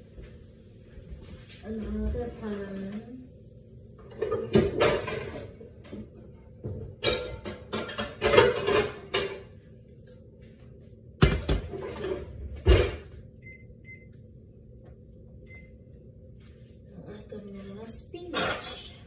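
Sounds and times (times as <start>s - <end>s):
pots and pans clattering: 4.0s - 9.6s, 11.2s - 13.1s, 18.3s - 18.9s.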